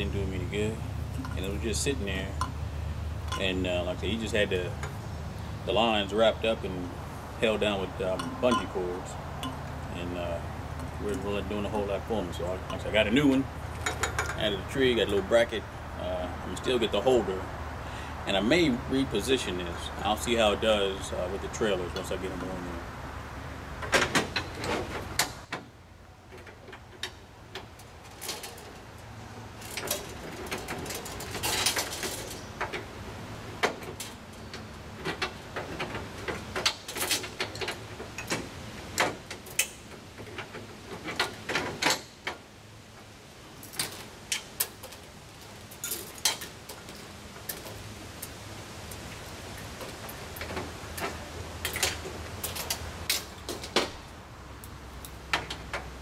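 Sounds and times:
hoses clicking and scraping on metal: 0.0 - 17.4, 23.8 - 56.0
low steady hum: 0.0 - 24.7.

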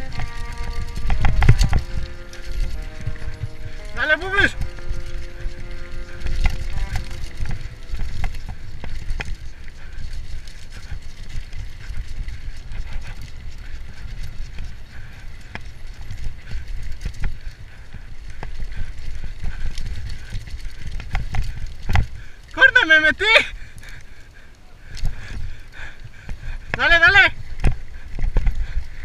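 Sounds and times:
heavy low rumble: 0.0 - 16.8
bike rattling and clacking: 0.0 - 29.0.

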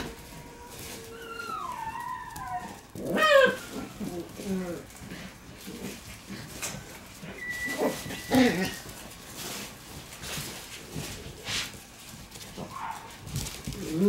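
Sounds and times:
puppies yapping and growling: 0.0 - 9.7, 12.5 - 14.0.

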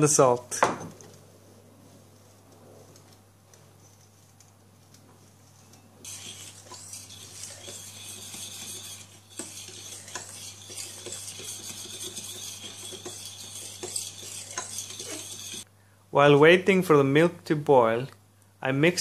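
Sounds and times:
spoon scraping saucepan: 6.1 - 15.7.

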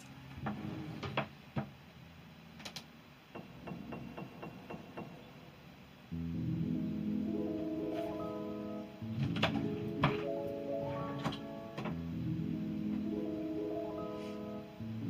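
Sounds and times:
music with mallet tones: 6.2 - 15.0.

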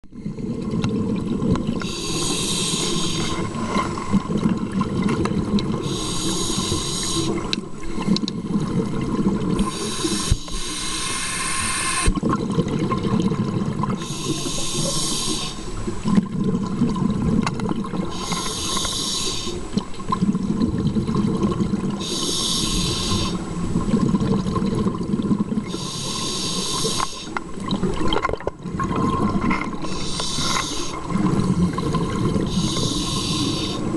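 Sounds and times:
rumble of exhaled bubbles: 0.1 - 6.0, 6.6 - 10.4, 11.6 - 33.9
hissing regulator inhalation: 1.8 - 4.1, 5.8 - 7.5, 9.6 - 12.2, 14.0 - 15.8, 18.1 - 19.7, 22.0 - 23.4, 25.7 - 27.4, 29.8 - 31.2, 31.8 - 33.9.

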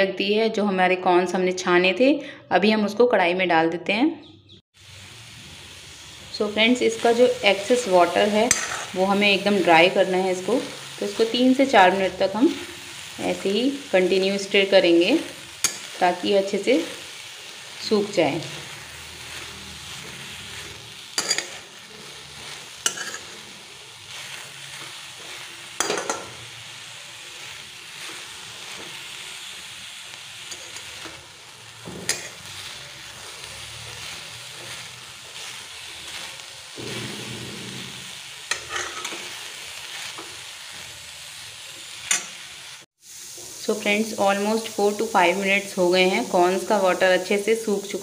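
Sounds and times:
corn sizzling in a pan: 4.7 - 48.0
metal spatula clinking on pan: 8.5 - 8.9, 21.2 - 21.6, 22.9 - 23.3.

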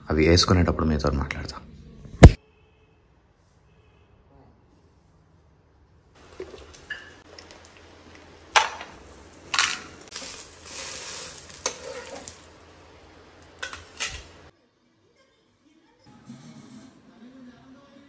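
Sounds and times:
food sizzling on a pan: 6.2 - 14.5
utensils clinking and knocking: 13.6 - 14.4.

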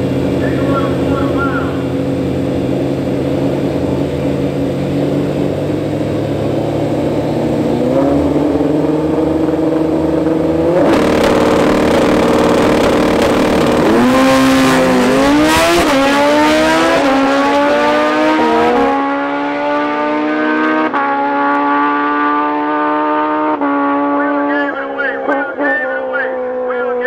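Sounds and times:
motorcycle engines revving: 0.0 - 27.0.

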